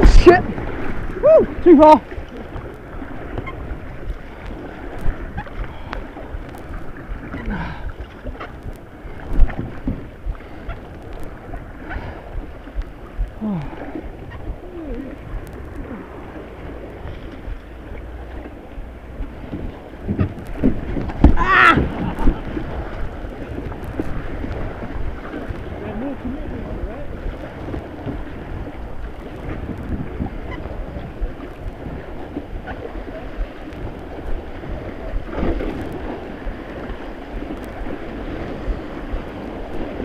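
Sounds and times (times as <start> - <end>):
white-water river rushing: 0.0 - 3.3
water washing over camera: 0.0 - 40.0
person shouting: 1.2 - 2.0, 21.4 - 21.9.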